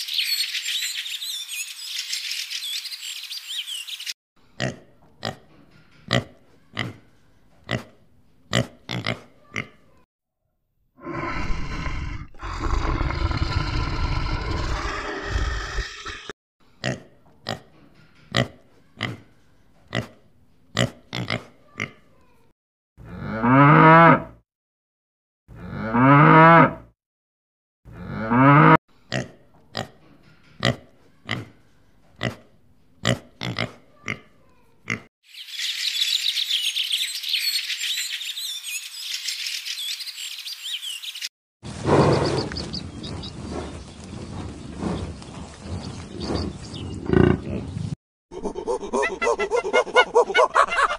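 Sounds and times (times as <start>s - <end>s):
cow mooing: 23.1s - 24.3s, 25.6s - 26.8s, 28.0s - 28.8s
gull calling: 48.4s - 50.9s.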